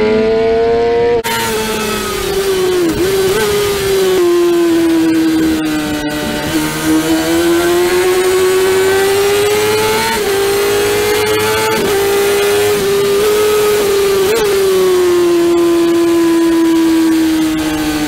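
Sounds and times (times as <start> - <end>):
motorcycle engine at high revs: 0.0 - 18.0.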